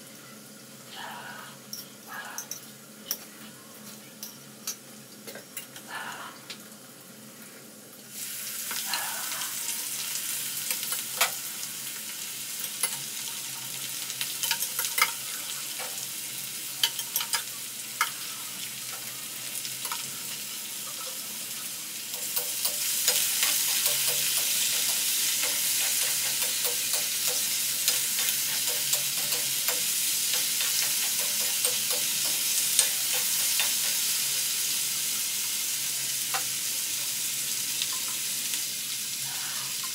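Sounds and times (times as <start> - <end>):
potatoes sizzling in hot oil: 6.5 - 39.9
metal spoon scraping a pan: 22.1 - 34.2.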